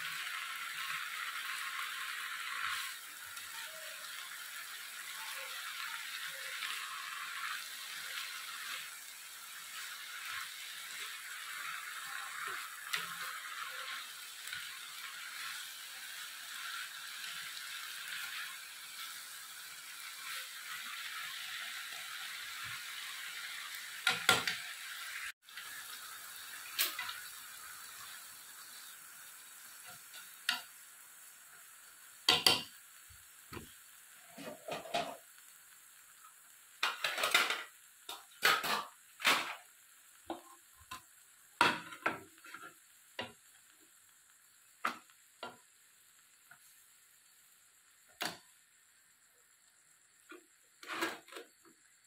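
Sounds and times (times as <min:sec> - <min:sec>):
greens sizzling in frying pan: 0:00.0 - 0:52.0
chopsticks scraping pan: 0:50.8 - 0:51.4.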